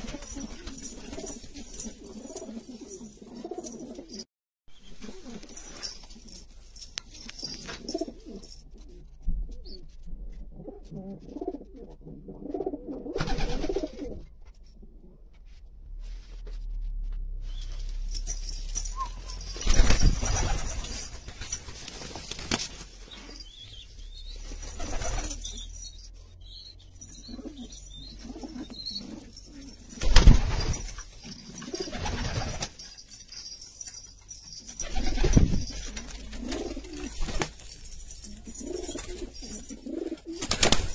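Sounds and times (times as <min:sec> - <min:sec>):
pigeons cooing: 0:27.2 - 0:30.0, 0:35.9 - 0:37.2, 0:38.2 - 0:40.4.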